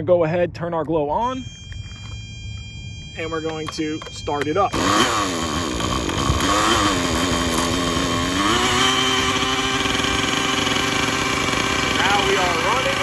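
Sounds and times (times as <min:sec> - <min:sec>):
electric starter spinning: 0:01.4 - 0:13.0
model engine firing and idling: 0:03.3 - 0:13.0.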